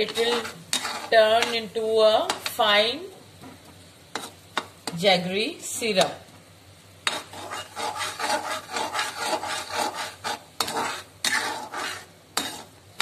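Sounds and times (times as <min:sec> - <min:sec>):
metal spoon scraping metal pan: 0:00.0 - 0:01.7, 0:04.1 - 0:05.0, 0:07.0 - 0:12.8.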